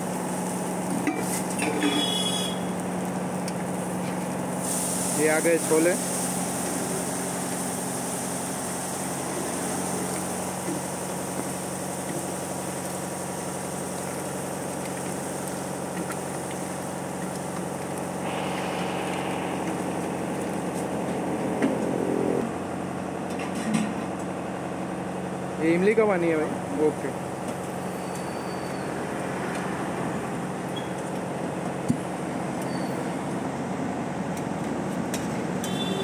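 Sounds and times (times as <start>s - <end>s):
water poured onto hot griddle: 0.0s - 21.9s
curry sizzling and bubbling: 0.0s - 22.8s
mechanical hum: 0.0s - 36.0s.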